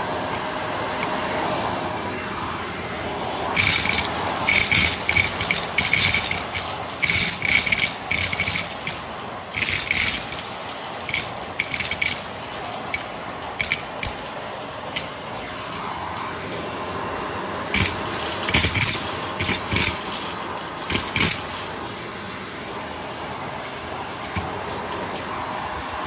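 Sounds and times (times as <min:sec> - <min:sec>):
vacuum cleaner running: 0:00.0 - 0:26.0
pellets rattling up vacuum wand: 0:03.5 - 0:15.2, 0:17.7 - 0:21.8.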